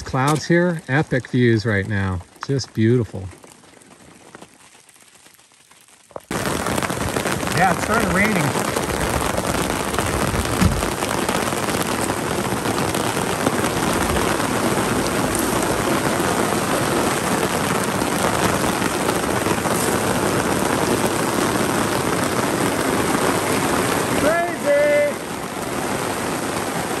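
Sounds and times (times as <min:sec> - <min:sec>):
heavy rain: 0:00.0 - 0:27.0
low thump: 0:10.2 - 0:11.0.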